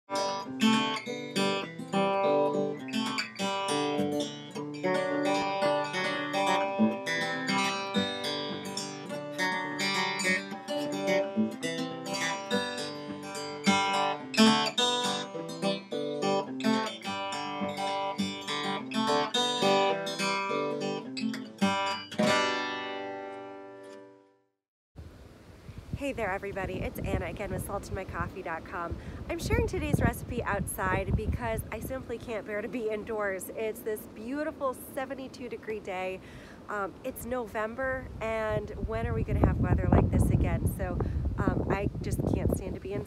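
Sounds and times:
acoustic guitar plucked notes: 0:00.1 - 0:24.3.

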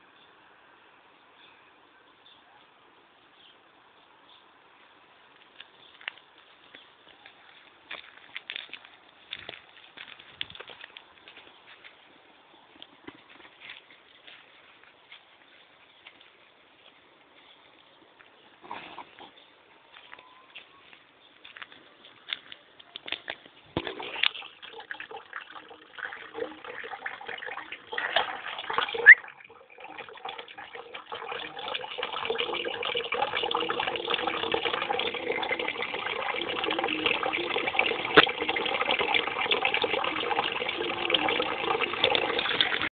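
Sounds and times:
water rushing: 0:23.8 - 0:42.9.

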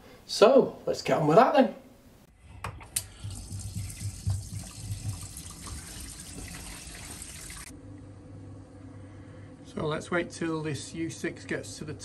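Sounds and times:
low steady hum: 0:02.2 - 0:12.0
tap water running into sink: 0:02.7 - 0:07.7.

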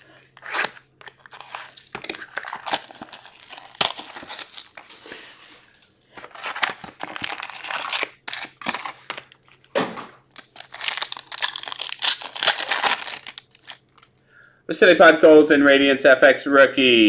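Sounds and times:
plastic wrapping crinkling and tearing: 0:00.0 - 0:09.7, 0:10.3 - 0:14.2.

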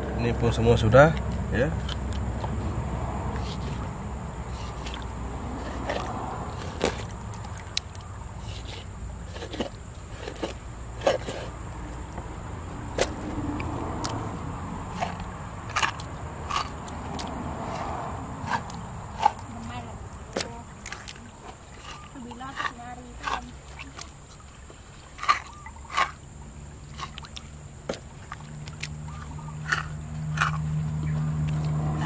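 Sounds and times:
low background rumble: 0:00.0 - 0:32.0.

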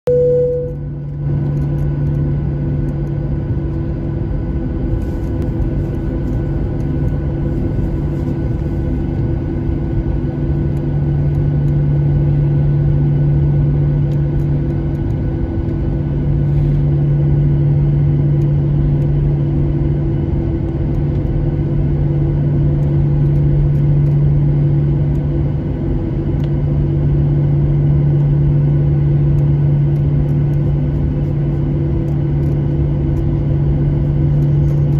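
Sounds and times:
aircraft cabin engine drone: 0:00.1 - 0:34.9.

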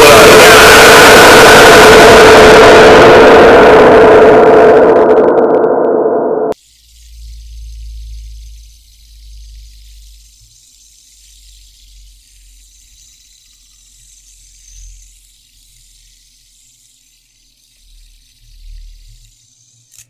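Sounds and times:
fidget spinner whirring: 0:06.5 - 0:20.0.

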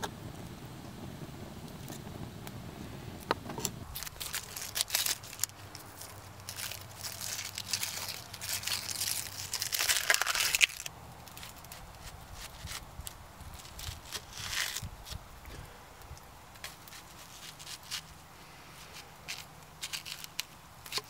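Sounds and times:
onion skin crackling: 0:03.8 - 0:15.4, 0:16.0 - 0:21.0.

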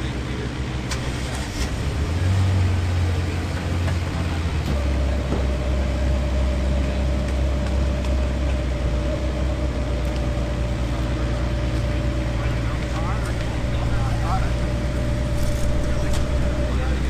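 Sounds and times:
engine idling: 0:00.0 - 0:17.0
thin steady whine: 0:04.7 - 0:17.0.

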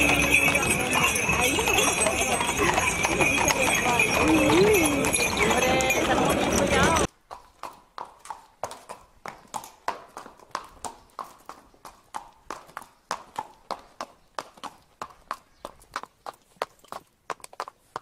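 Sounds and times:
horse hooves clip-clopping on street: 0:00.0 - 0:18.0.

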